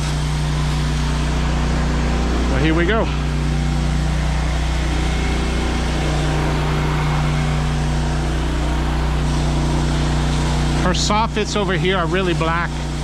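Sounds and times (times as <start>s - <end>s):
pressure washer engine drone: 0.0s - 13.0s
spray gun hissing: 3.2s - 13.0s.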